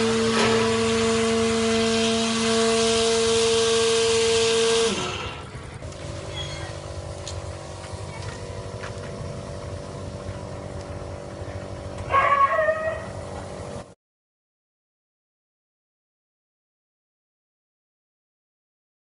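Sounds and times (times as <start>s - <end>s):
small electric motor whining: 0.0s - 7.4s
quiet steady motor hum: 0.0s - 14.0s.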